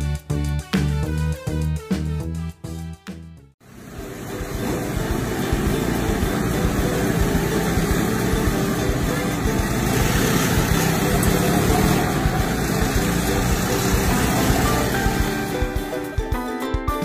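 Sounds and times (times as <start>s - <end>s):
off-road buggy engines rumbling: 3.7s - 15.9s.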